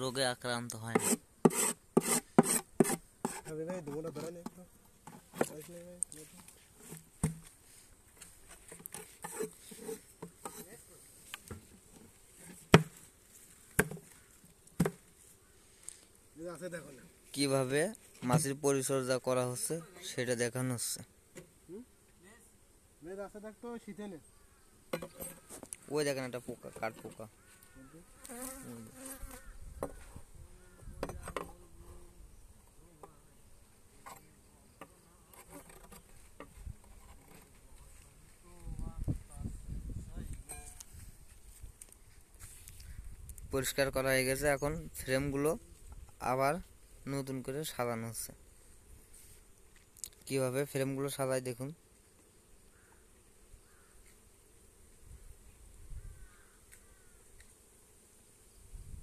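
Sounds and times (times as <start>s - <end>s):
scraper on wooden hive floor: 0.9s - 4.4s, 5.1s - 14.4s, 26.6s - 30.2s, 33.9s - 38.4s, 42.3s - 42.8s, 48.8s - 49.6s
bees buzzing faintly: 3.0s - 59.0s
wooden box knocks: 7.2s - 7.5s, 14.8s - 15.0s.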